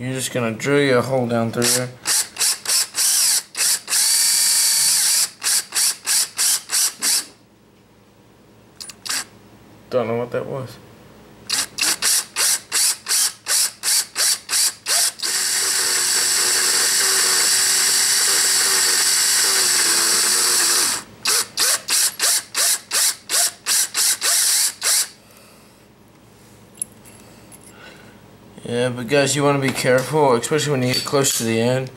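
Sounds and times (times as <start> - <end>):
cordless drill drilling metal: 1.6 - 7.4, 8.8 - 9.3, 11.5 - 25.2.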